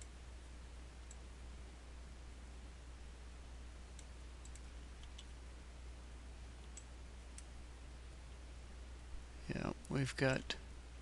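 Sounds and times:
mouse and keyboard clicks: 4.0 - 5.4.

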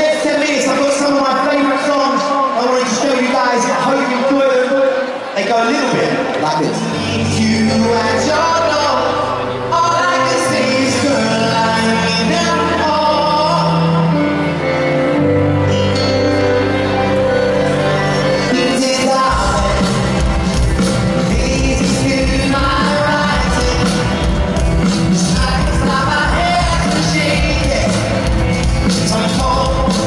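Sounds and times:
live pop band: 0.0 - 30.0
keyboard chords: 4.9 - 30.0
man singing: 6.7 - 14.7, 17.9 - 30.0
drums and bass beat: 18.8 - 30.0.

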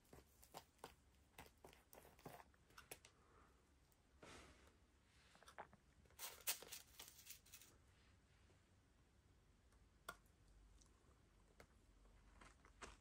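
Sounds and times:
spoon scraping candy sprinkles: 5.5 - 7.7.

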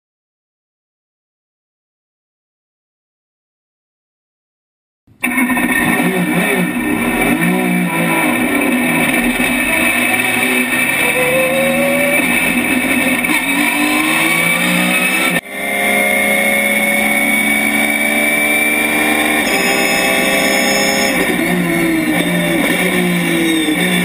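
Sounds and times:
race car engine from inside cabin: 5.2 - 24.0.

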